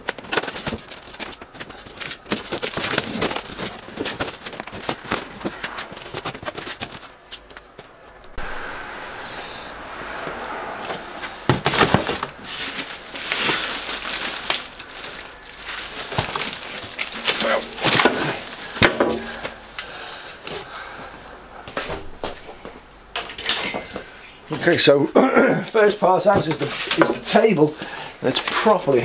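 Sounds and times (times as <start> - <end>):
plastic wrap crinkling: 0.0 - 7.5, 11.6 - 19.5
polystyrene foam creaking: 11.5 - 19.5.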